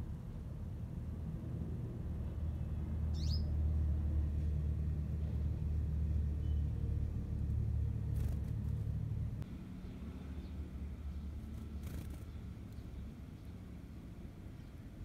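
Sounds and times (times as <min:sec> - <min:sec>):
rising bird chirp: 0:03.1 - 0:03.6
steady low rumble: 0:03.8 - 0:15.0.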